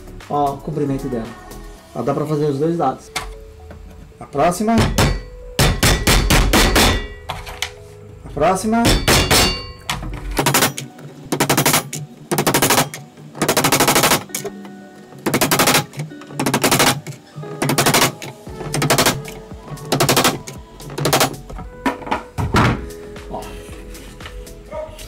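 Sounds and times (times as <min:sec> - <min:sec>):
background music: 0:00.0 - 0:25.0
hammer knocking wooden dowels: 0:04.8 - 0:07.5.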